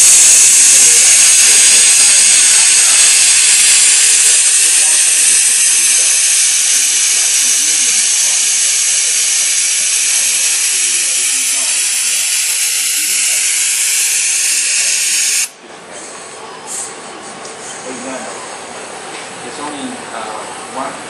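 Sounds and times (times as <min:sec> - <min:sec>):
loud steady hiss: 0:00.0 - 0:15.6.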